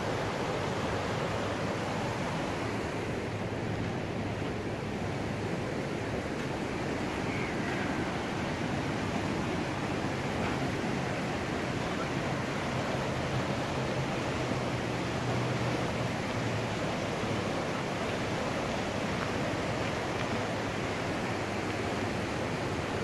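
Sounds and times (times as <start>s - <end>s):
river rushing: 0.0s - 23.0s.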